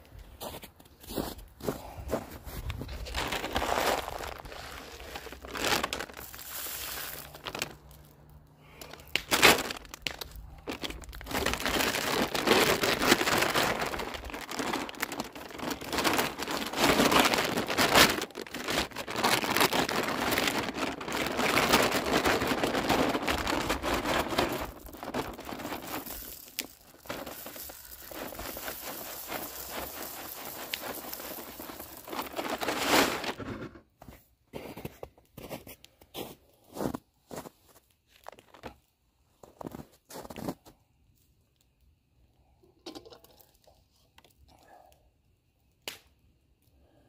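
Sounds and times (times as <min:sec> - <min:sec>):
plastic bag crinkling: 0:02.7 - 0:33.8
birdseed pouring into feeder: 0:11.6 - 0:33.4.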